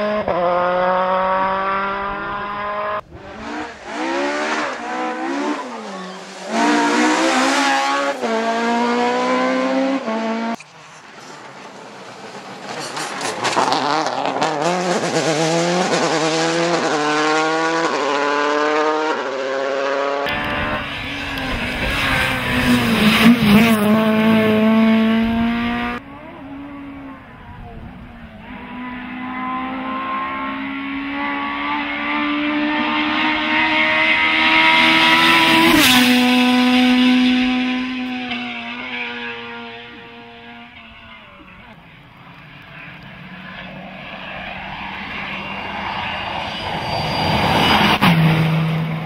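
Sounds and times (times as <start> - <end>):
rally car engine accelerating: 0.0 - 49.0.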